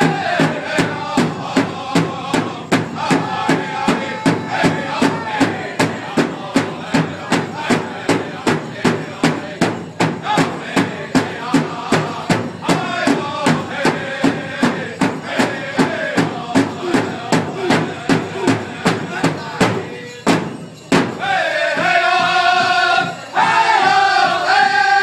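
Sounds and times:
large drum beating: 0.0 - 25.0
people singing: 0.0 - 25.0.

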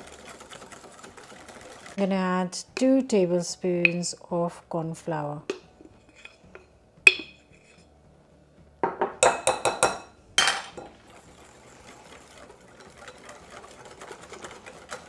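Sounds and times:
soft whisking of thick mixture: 0.0 - 4.1, 5.8 - 6.7, 7.4 - 7.9, 10.9 - 15.0
whisk clinking against glass bowl: 11.7 - 15.0.

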